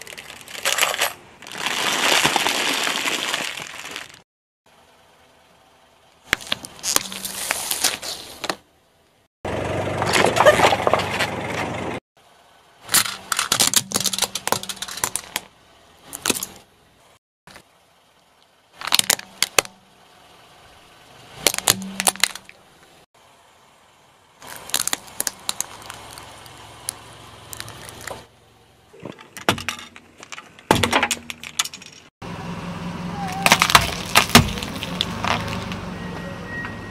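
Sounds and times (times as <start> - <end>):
tyre crushing plastic toys: 0.0 - 4.2, 12.9 - 15.5, 18.8 - 19.7, 21.4 - 22.6, 24.4 - 26.5, 33.4 - 35.7.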